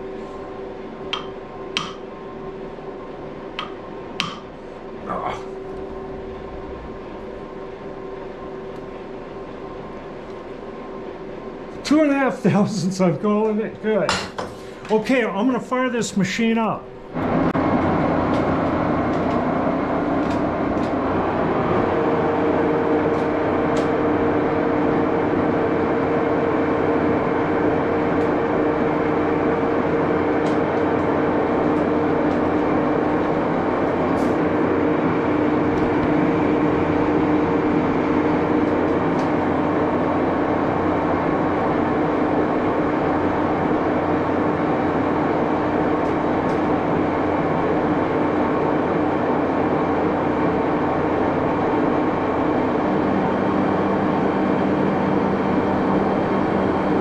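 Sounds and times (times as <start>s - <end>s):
lathe running: 0.0s - 57.0s
steady tone: 3.6s - 9.8s.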